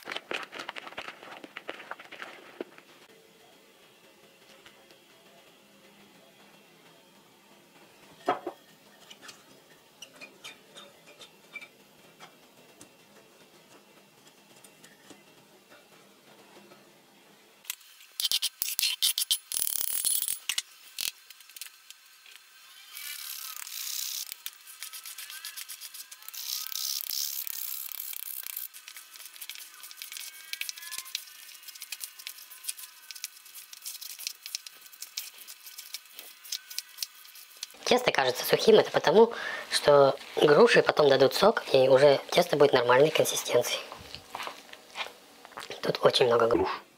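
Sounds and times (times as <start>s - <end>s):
hands squeezing crumbly dough: 0.0s - 3.0s, 28.4s - 37.8s
spoon scraping dough in plastic bowl: 0.1s - 2.9s.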